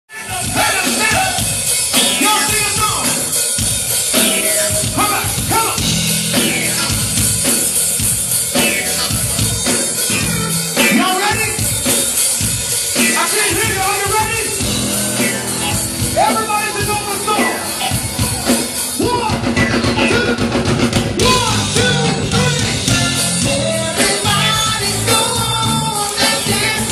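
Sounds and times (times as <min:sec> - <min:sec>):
drum kit beat: 0:00.1 - 0:26.9
funk band playing: 0:00.1 - 0:26.9
bass line: 0:00.2 - 0:11.9, 0:13.0 - 0:26.9
voices singing: 0:12.8 - 0:26.9.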